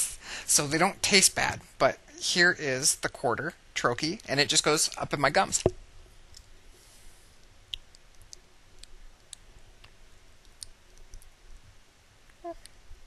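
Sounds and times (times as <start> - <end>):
wet mouth clicks: 7.7 - 8.4.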